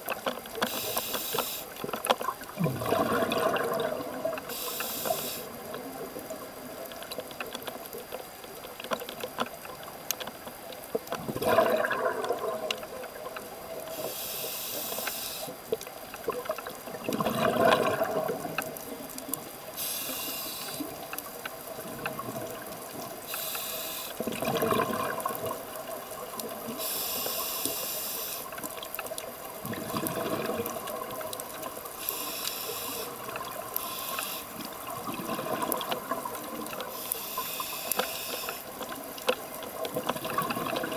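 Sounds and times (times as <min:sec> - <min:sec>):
regulator hissing inhalations: 0:00.7 - 0:01.8, 0:04.5 - 0:05.6, 0:13.9 - 0:15.6, 0:19.8 - 0:20.9, 0:23.3 - 0:24.2, 0:26.8 - 0:28.6, 0:32.0 - 0:34.6, 0:36.9 - 0:38.7
bubbly gurgling exhalations: 0:02.3 - 0:04.6, 0:11.2 - 0:13.3, 0:16.2 - 0:19.1, 0:24.2 - 0:25.8, 0:29.6 - 0:31.8, 0:34.5 - 0:36.9, 0:39.8 - 0:40.9.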